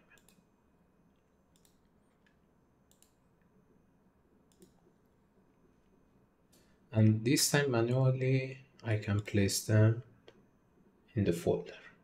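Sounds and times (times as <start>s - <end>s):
computer mouse clicks: 0.0s - 0.5s, 1.5s - 3.5s, 4.4s - 5.0s.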